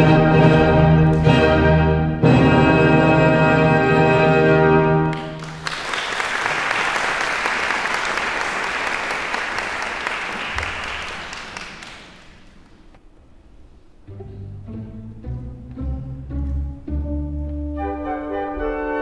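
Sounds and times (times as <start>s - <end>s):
audience applause: 5.1s - 12.7s.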